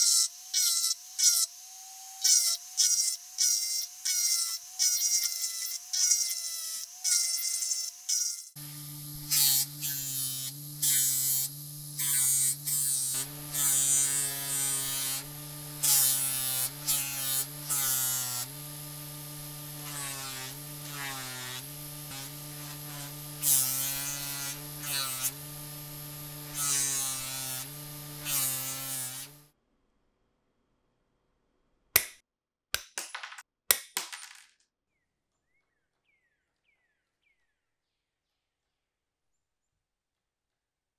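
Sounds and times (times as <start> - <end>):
bench grinder motor hum: 0.0 - 29.5
hissing of buffing metal: 8.6 - 29.4.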